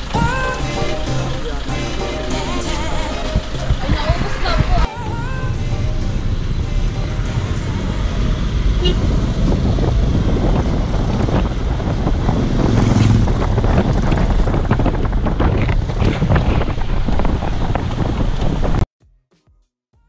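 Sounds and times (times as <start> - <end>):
car engine and road rumble: 0.0 - 18.9
wind buffeting microphone: 3.2 - 5.3, 7.2 - 18.8.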